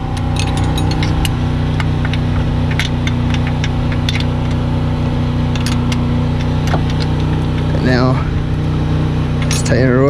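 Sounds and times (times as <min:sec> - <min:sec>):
steady engine hum: 0:00.0 - 0:10.0
ratcheting wrench clicking: 0:00.2 - 0:04.7, 0:05.5 - 0:07.7.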